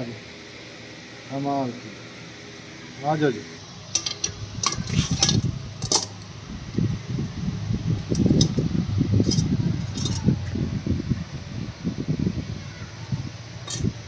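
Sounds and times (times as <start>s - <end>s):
wire grill basket clinking: 3.8s - 6.3s, 8.0s - 10.6s, 13.6s - 14.0s
low uneven rumble: 4.0s - 14.0s.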